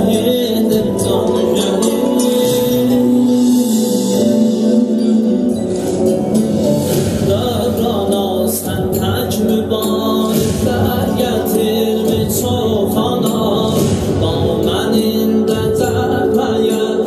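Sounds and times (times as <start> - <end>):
low accompaniment: 0.0 - 17.0
slow song with held sung notes: 0.0 - 17.0.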